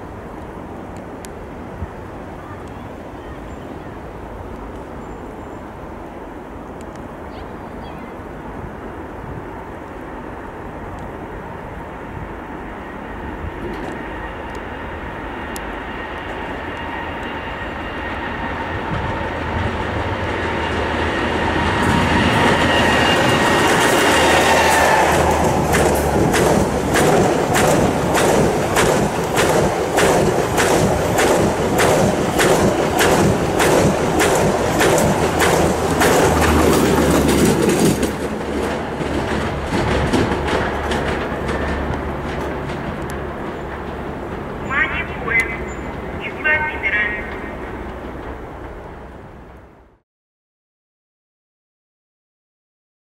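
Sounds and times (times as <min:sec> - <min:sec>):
electric locomotive whine: 0:08.1 - 0:50.0
train wheels clacking over rail joints: 0:19.8 - 0:44.7.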